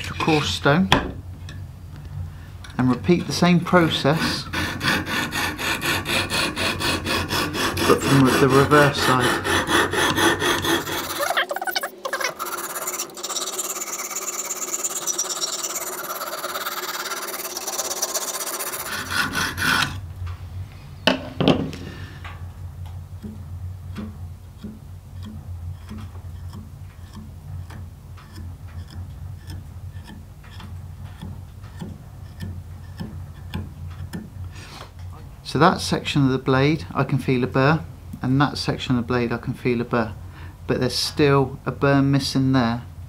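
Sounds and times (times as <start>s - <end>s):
low steady hum: 0.0s - 43.0s
sharpening stone rasping on knife: 7.8s - 20.0s.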